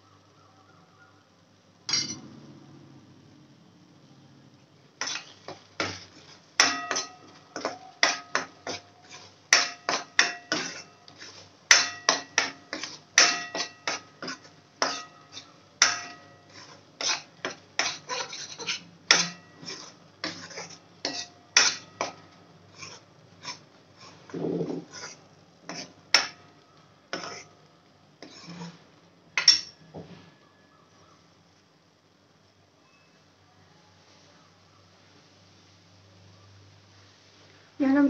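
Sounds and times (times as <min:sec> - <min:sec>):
steel spoon scraping metal pan: 0:05.0 - 0:26.5, 0:27.1 - 0:27.6, 0:28.2 - 0:28.8, 0:29.4 - 0:29.8.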